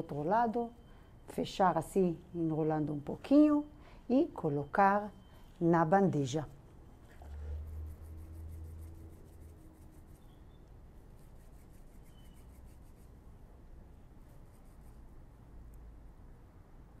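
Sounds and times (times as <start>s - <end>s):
low steady hum: 0.0s - 17.0s
palms rubbing dough: 7.3s - 10.4s, 11.0s - 13.3s.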